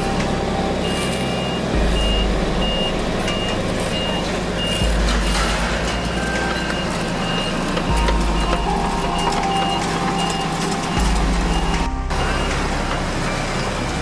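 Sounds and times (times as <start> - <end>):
diesel engine rumble: 0.0 - 14.0
reversing alarm beeping: 0.0 - 14.0.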